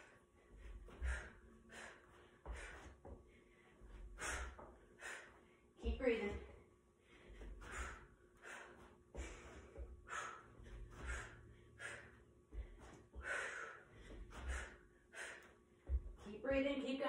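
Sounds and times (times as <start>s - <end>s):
woman panting: 0.0s - 16.6s
bare feet landing thuds: 2.4s - 4.8s, 8.9s - 11.4s, 15.8s - 16.3s.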